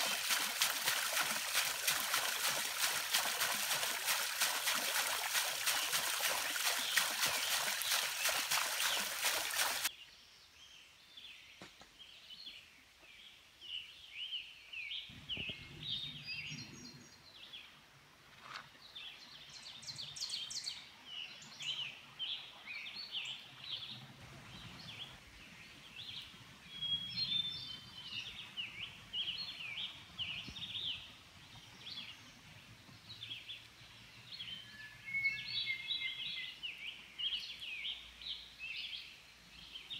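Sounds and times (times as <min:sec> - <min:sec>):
water splashing into a pool: 0:00.0 - 0:09.9
songbirds chirping: 0:00.0 - 0:39.9.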